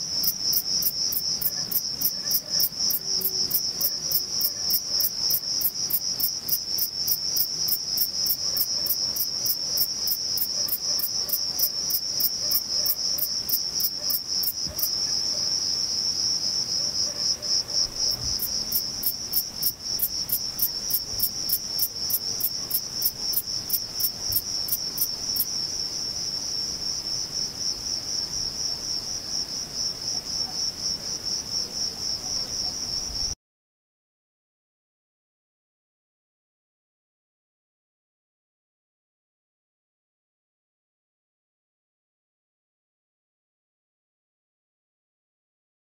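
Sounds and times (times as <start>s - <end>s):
bush cricket chirping: 0.0s - 33.3s.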